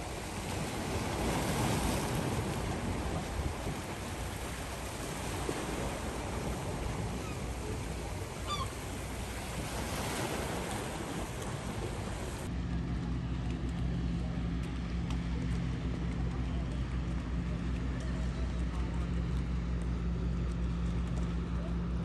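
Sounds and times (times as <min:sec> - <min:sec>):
waves lapping on rocky shore: 0:00.0 - 0:12.5
motorboat engine humming: 0:00.0 - 0:22.0.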